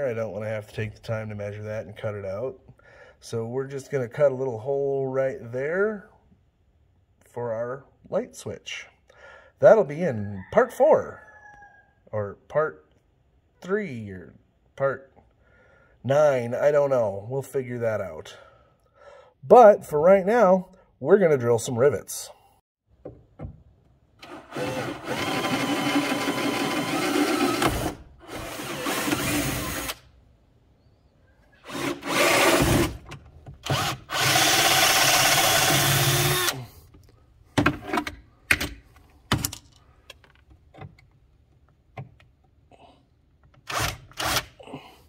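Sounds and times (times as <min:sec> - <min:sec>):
cordless drill drilling rivets: 0:24.2 - 0:30.1, 0:31.6 - 0:36.7, 0:43.6 - 0:44.6.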